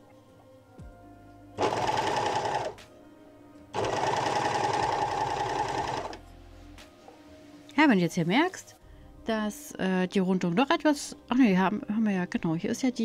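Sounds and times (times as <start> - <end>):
overlock sewing machine running: 1.6 - 2.8, 3.8 - 6.2.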